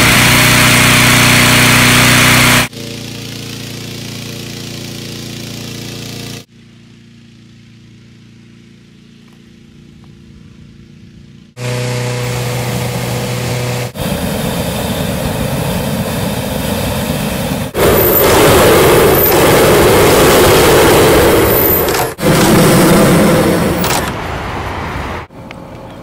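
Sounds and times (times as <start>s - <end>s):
engine-driven fan running: 0.0s - 24.4s
propane burner rushing: 11.6s - 24.2s.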